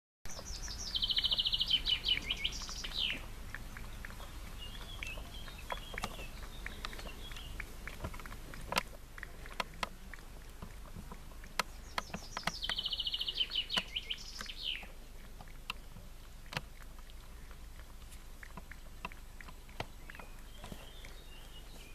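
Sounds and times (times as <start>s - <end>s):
songbird singing: 0.3s - 21.9s
cat lapping milk: 0.5s - 11.9s, 14.9s - 21.8s.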